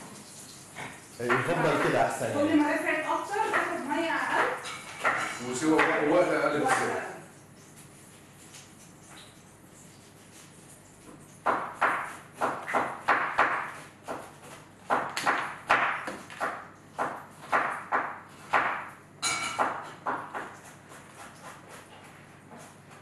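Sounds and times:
knife chopping on cutting board: 0:01.3 - 0:02.1, 0:03.4 - 0:07.0, 0:11.4 - 0:23.0.

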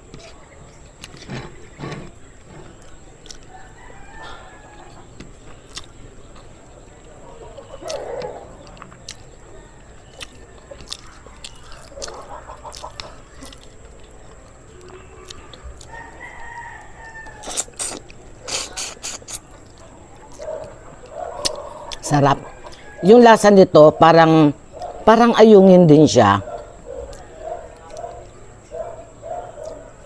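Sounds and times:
rooster crowing: 0:03.4 - 0:05.2, 0:15.6 - 0:17.8, 0:21.3 - 0:23.6.

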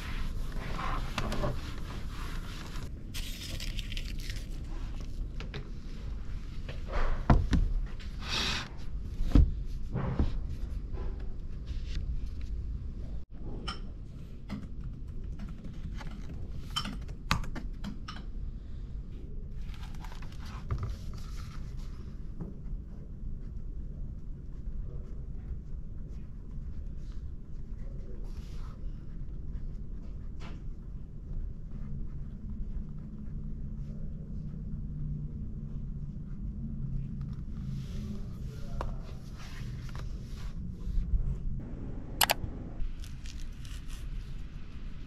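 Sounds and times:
notebook pages flipping: 0:00.8 - 0:05.3, 0:19.6 - 0:22.0, 0:42.2 - 0:44.5
low steady rumble: 0:20.9 - 0:45.0.

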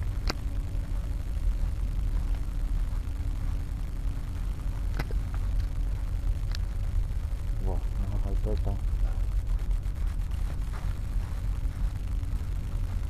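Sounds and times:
faint steady hum: 0:00.0 - 0:13.0
sharp clicks: 0:04.9 - 0:05.7.

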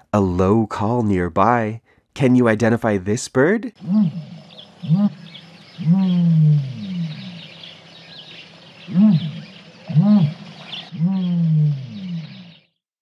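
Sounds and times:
ostrich low booming call: 0:03.7 - 0:07.8, 0:08.9 - 0:12.5
small birds chirping: 0:03.7 - 0:12.8.

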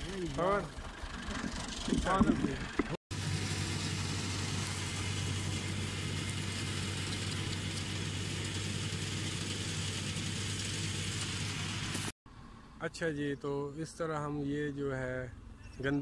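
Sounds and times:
tractor diesel engine running: 0:00.0 - 0:12.7.

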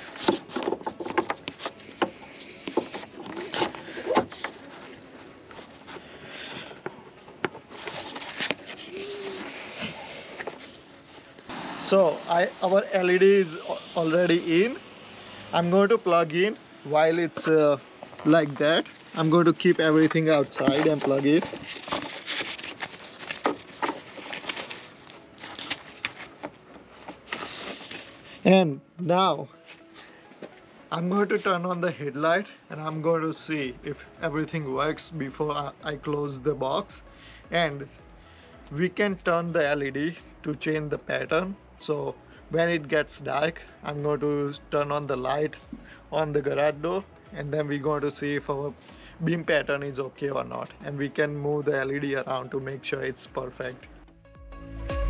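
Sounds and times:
glove rubbing: 0:00.0 - 0:11.5, 0:17.2 - 0:28.4.

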